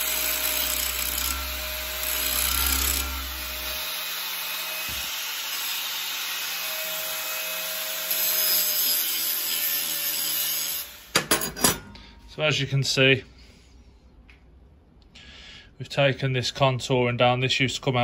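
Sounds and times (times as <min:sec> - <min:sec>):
angle grinder grinding steel: 0:00.0 - 0:11.2.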